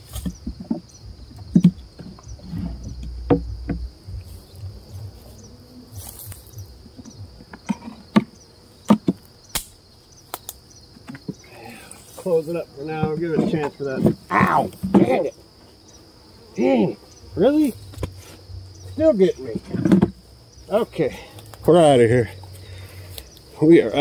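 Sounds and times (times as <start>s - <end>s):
wooden hive frames knocking: 0.0s - 5.6s, 6.2s - 9.4s, 10.8s - 11.5s, 12.7s - 15.4s, 16.8s - 20.2s
crickets chirring: 0.0s - 24.0s.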